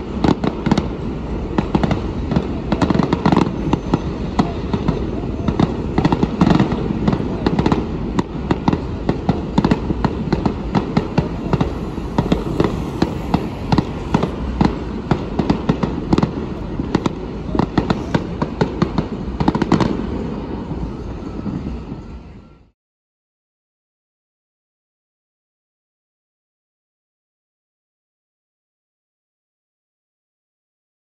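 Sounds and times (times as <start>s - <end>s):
fireworks bangs and crackles: 0.0s - 22.6s
low rumble: 9.9s - 17.4s.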